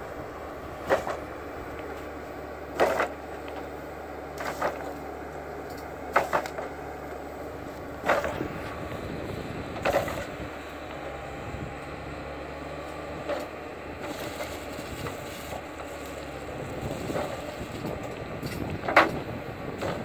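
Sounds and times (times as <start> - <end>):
forwarder engine running: 0.0 - 20.0.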